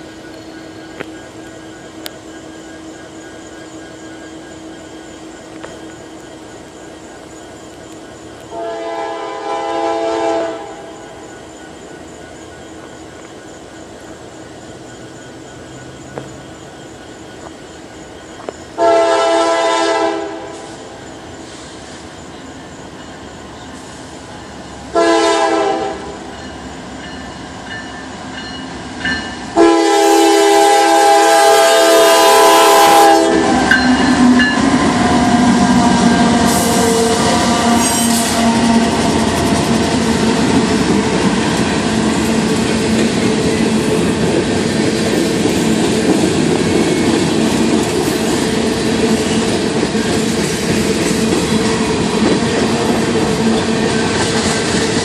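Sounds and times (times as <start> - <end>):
train rumbling past on rails: 0.0 - 55.0
locomotive air horn blasts: 8.5 - 11.0, 18.8 - 20.8, 24.9 - 26.2, 29.6 - 39.3.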